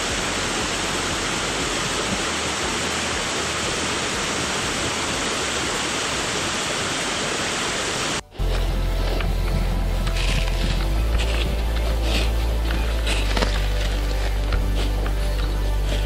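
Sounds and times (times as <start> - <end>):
stream running over rocks: 0.0 - 16.0
waterfall rushing: 0.0 - 16.0.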